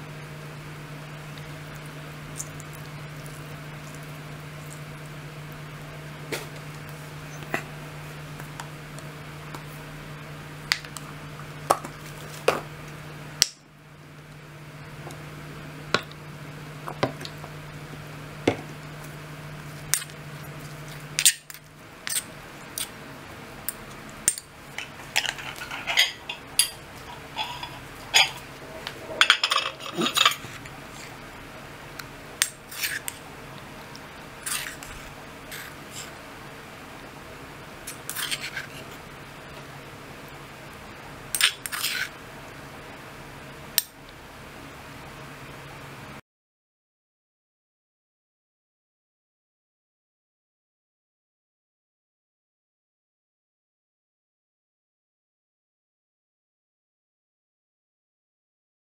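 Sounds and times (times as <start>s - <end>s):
steady low hum: 0.0s - 46.2s
spoon scraping in stone mortar: 24.7s - 31.2s, 32.4s - 33.2s, 34.4s - 36.2s, 37.9s - 39.0s, 41.4s - 42.1s.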